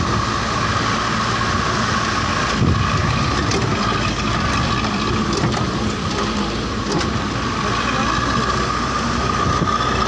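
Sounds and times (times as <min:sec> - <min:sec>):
vehicle engine and road noise: 0:00.0 - 0:10.0
rattles and knocks: 0:02.5 - 0:07.3.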